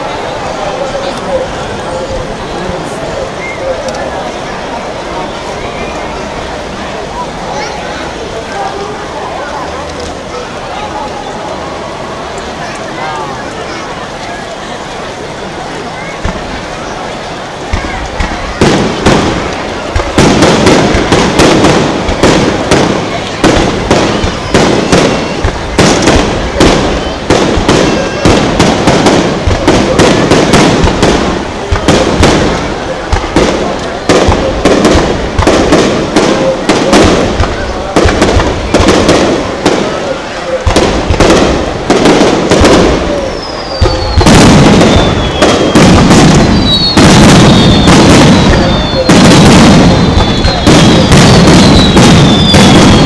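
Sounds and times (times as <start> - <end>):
fireworks bursting: 0.0 - 53.0
falling firework whistles: 18.5 - 31.1, 42.4 - 53.0.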